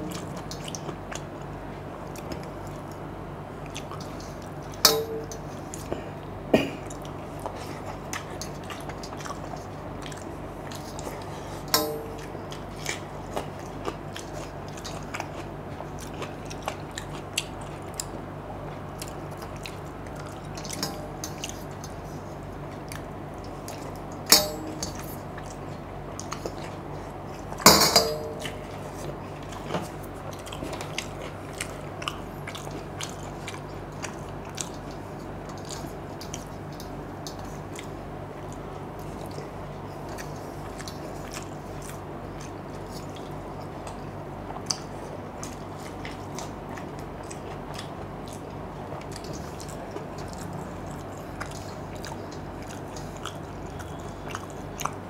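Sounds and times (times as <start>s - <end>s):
steady low hum: 0.0s - 55.0s
wet chewing and smacks: 0.1s - 27.6s, 28.4s - 55.0s
sharp knocks on a plate: 24.3s - 25.0s, 27.7s - 28.4s.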